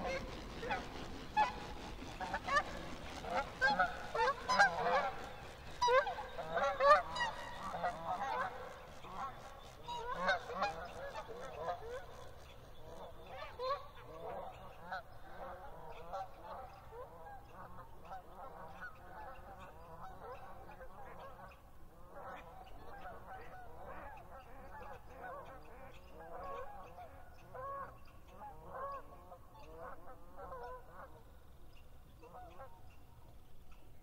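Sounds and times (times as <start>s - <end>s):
geese honking: 0.0s - 12.1s.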